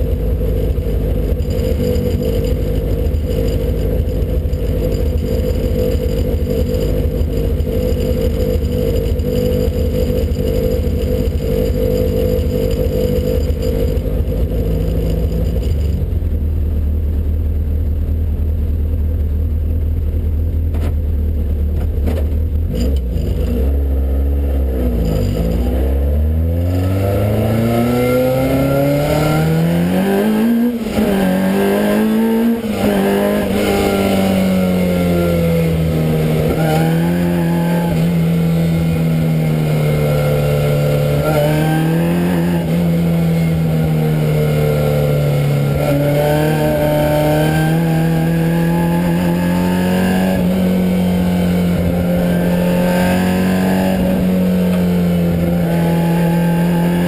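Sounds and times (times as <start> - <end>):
race car engine revving: 20.7 - 57.0.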